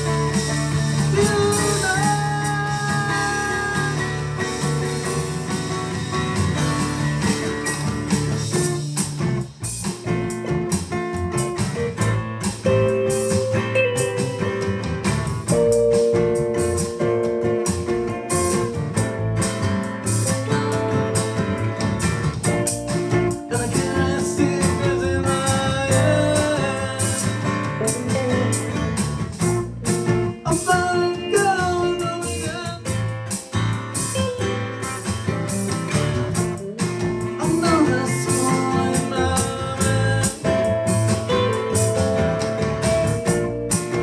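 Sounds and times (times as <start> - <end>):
electronic drum beat: 0.0 - 44.0
ringing guitar notes: 12.5 - 35.1, 36.4 - 44.0.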